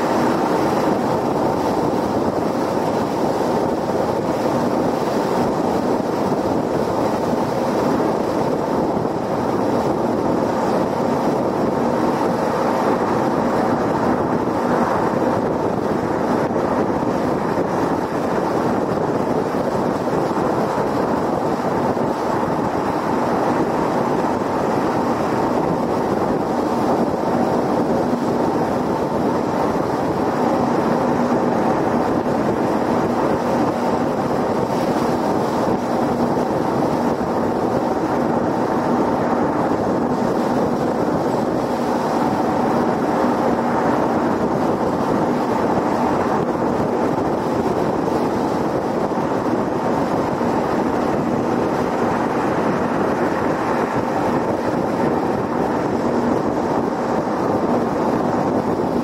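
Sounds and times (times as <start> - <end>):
tyre road noise: 0.0 - 59.0
wind noise: 0.0 - 59.0.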